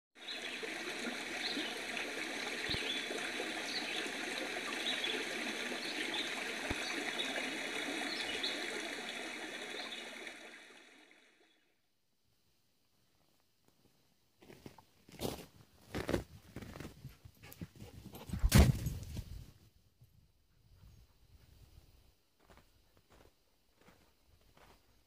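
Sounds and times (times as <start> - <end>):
stream babbling over rocks: 0.2 - 11.5.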